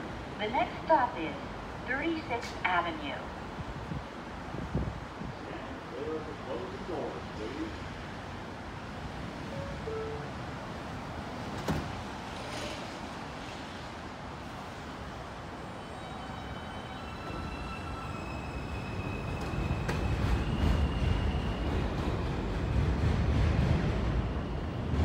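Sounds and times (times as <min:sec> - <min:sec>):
train doors closing knock: 0:11.5 - 0:12.0.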